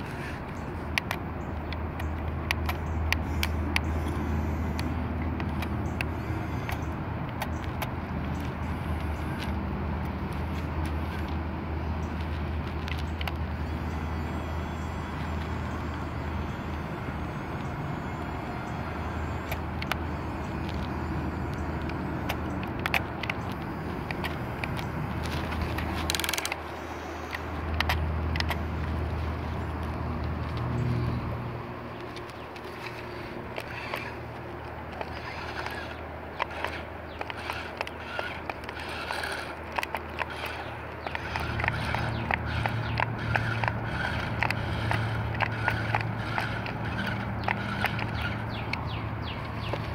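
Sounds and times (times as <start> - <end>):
plastic gear clicks: 0.0 - 49.9
toy electric motor hum: 0.0 - 49.9.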